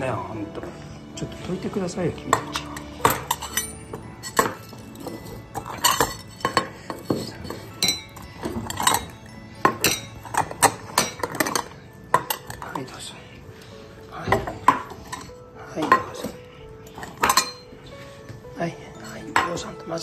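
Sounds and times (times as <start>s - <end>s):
metal bowls clinking: 1.8s - 13.2s, 14.1s - 18.4s, 19.0s - 20.0s.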